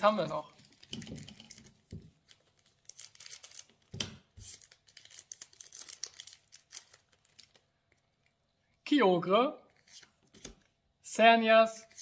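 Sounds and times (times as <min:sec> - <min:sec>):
foil wrapper tearing and crinkling: 0:02.2 - 0:07.6.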